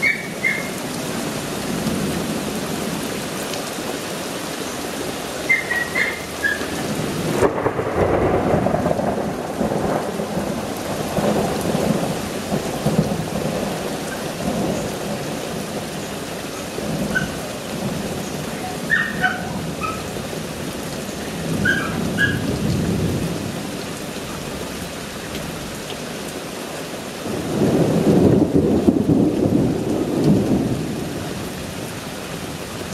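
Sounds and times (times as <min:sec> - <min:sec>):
steady rain: 0:00.0 - 0:32.9
thunder rumbling: 0:05.7 - 0:23.8, 0:27.2 - 0:32.6.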